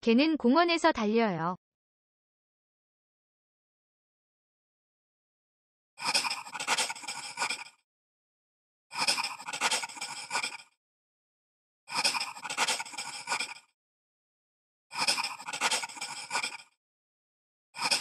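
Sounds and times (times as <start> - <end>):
pencil scratching on paper: 6.0 - 7.6, 9.0 - 10.6, 11.9 - 13.6, 15.0 - 16.7.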